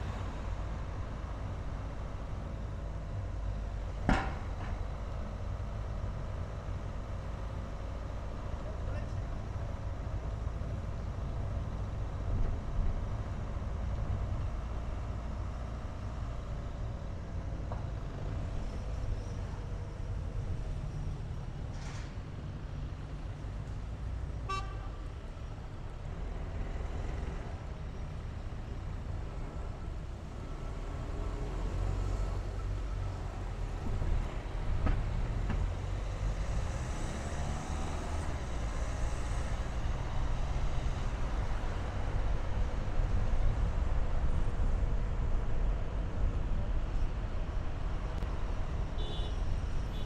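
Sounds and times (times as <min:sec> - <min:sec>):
car road and engine rumble: 0:00.0 - 0:50.0
car horn toot: 0:24.5 - 0:25.0, 0:49.0 - 0:50.0.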